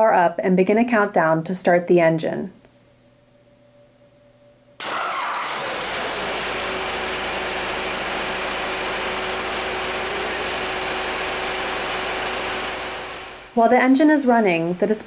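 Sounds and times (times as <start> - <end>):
diesel engine starting and running: 4.8 - 13.6.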